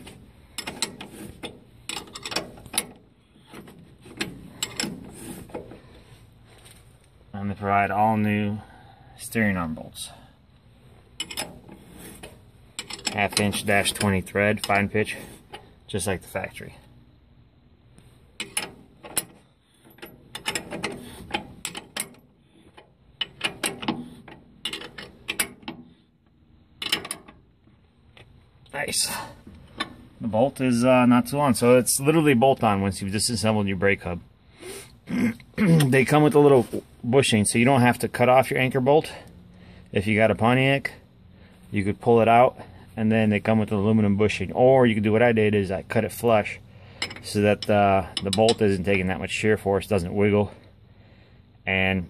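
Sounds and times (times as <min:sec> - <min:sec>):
metal bolts clinking together: 0:00.0 - 0:05.8, 0:11.1 - 0:15.7, 0:18.4 - 0:26.0, 0:26.7 - 0:27.5, 0:46.2 - 0:49.1
ratcheting wrench clicking: 0:00.5 - 0:05.3, 0:18.4 - 0:25.8.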